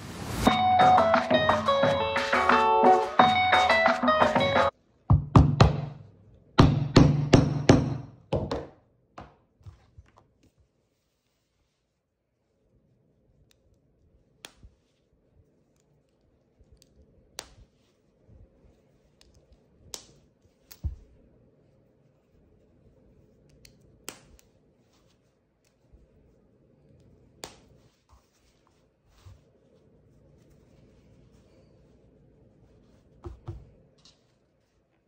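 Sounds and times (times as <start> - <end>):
fabric rustling: 9.6 - 12.7, 24.6 - 35.0.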